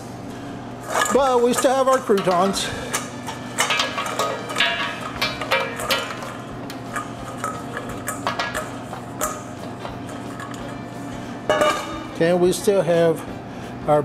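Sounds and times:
croutons rattling in metal bowl: 0:00.9 - 0:02.6.

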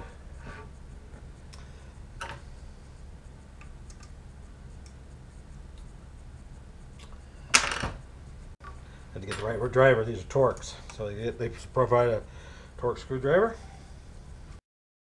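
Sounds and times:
steady low hum: 0:00.0 - 0:14.6
metal parts clicking and tapping: 0:08.6 - 0:09.8.

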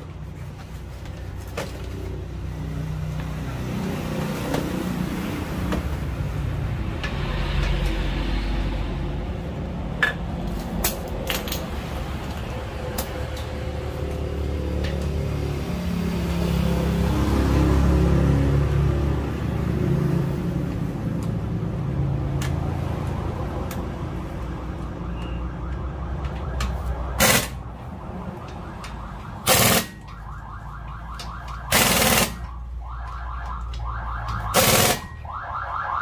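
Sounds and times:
pneumatic impact wrench: 0:27.2 - 0:27.6, 0:29.4 - 0:30.0, 0:31.7 - 0:32.4, 0:34.5 - 0:35.1.

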